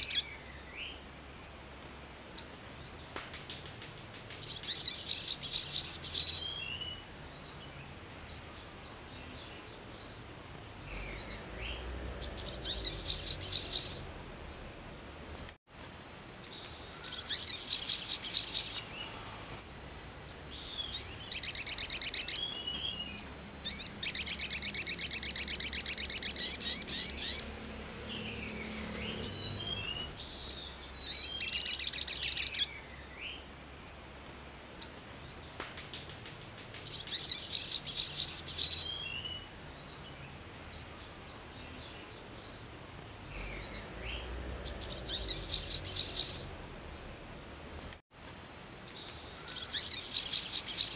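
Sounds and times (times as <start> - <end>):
bird singing high trills: 0.0 - 1.0, 4.4 - 9.4, 10.0 - 14.9, 16.4 - 19.2, 19.8 - 33.4, 36.8 - 40.3, 40.9 - 47.3, 48.9 - 50.9.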